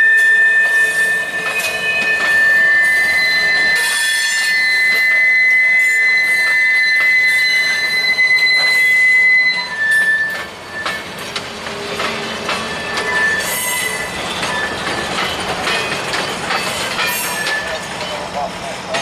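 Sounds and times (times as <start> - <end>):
train wheel squeal: 0.0 - 19.0
steel wheels clattering over rails: 9.9 - 19.0.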